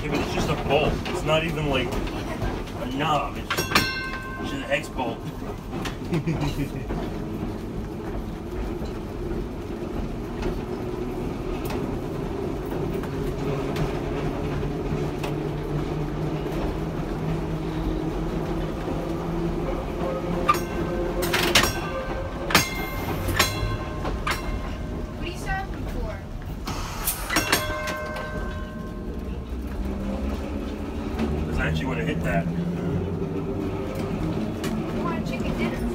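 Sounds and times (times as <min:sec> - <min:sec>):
electric trolley motor hum: 0:00.0 - 0:35.9
wheels rumbling on rails: 0:00.0 - 0:35.9
sharp metallic clanks: 0:03.4 - 0:04.8, 0:20.4 - 0:25.4, 0:26.6 - 0:29.0.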